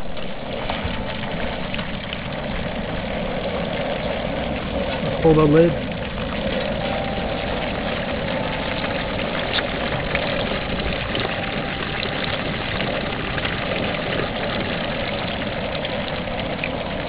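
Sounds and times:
gas burner rushing: 0:00.0 - 0:17.0
hot oil bubbling and crackling: 0:00.0 - 0:17.0.

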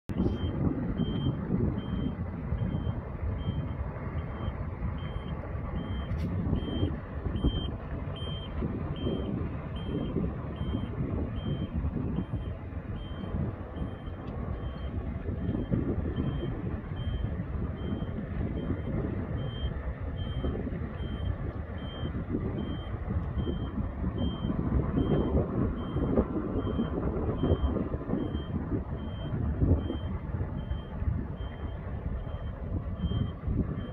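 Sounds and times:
engine running low: 0:00.0 - 0:33.9
motion warning alarm beeping: 0:00.2 - 0:33.9.

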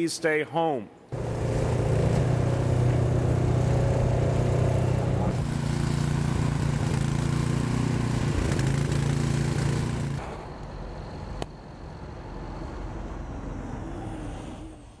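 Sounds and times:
low traffic rumble: 0:01.0 - 0:15.0
snowblower engine running: 0:01.1 - 0:10.5.

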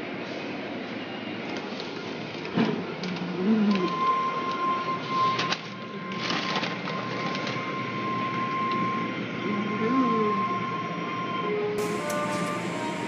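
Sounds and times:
high whine: 0:11.1 - 0:13.0
car wash machinery running: 0:11.8 - 0:13.0.

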